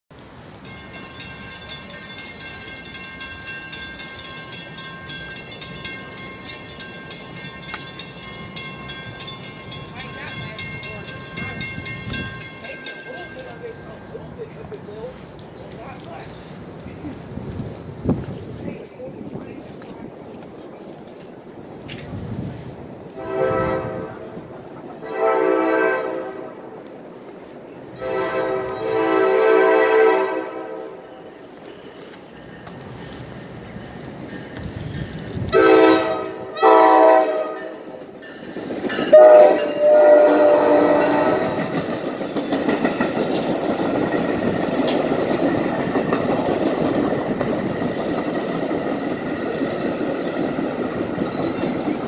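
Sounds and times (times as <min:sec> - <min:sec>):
crossing warning bells ringing: 0:00.2 - 0:17.7, 0:20.8 - 0:52.0
train air horn blasts: 0:23.1 - 0:26.8, 0:28.0 - 0:31.1, 0:35.5 - 0:37.9, 0:39.1 - 0:41.7.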